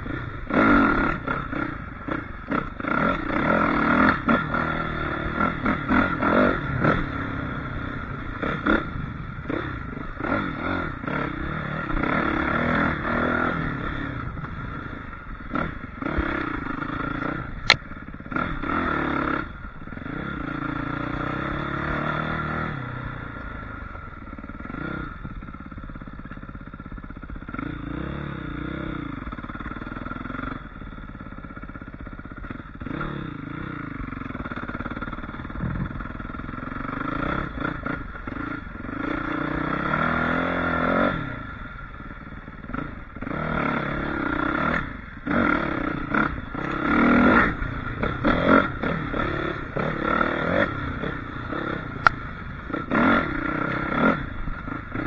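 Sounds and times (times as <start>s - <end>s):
dirt bike engine revving: 0.0s - 55.0s
sharp click: 17.6s - 17.8s.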